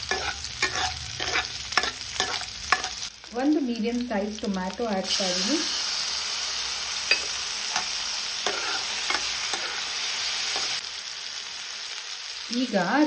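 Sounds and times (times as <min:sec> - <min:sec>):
onions sizzling in hot oil: 0:00.0 - 0:13.0
ladle scraping and clinking pan: 0:00.1 - 0:03.0, 0:07.1 - 0:09.8.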